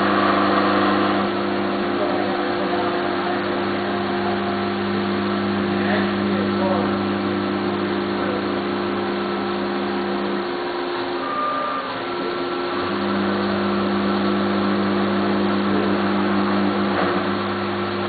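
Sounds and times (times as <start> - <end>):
coolant spray hiss: 0.0 - 11.3, 11.9 - 18.0
milling machine humming: 0.0 - 18.0.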